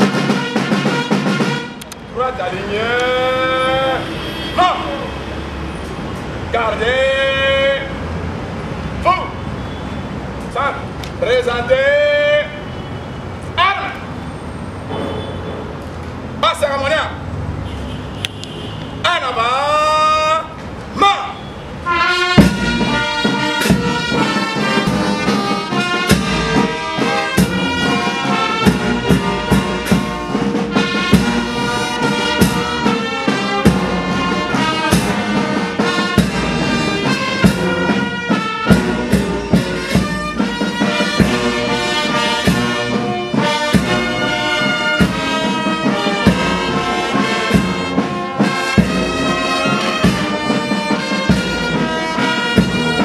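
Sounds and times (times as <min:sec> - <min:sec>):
steady drum strokes: 0:00.0 - 0:01.8, 0:22.2 - 0:53.0
military brass band playing march: 0:00.0 - 0:05.5, 0:21.8 - 0:53.0.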